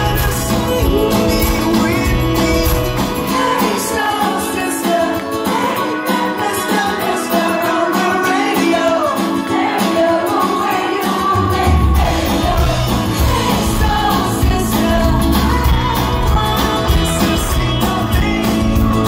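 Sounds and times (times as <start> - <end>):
bass and drums: 0.0 - 3.7, 11.3 - 19.0
man singing: 0.0 - 19.0.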